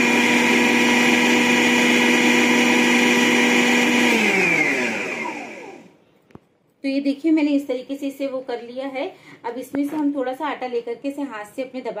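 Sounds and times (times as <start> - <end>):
food processor motor humming: 0.0 - 5.9.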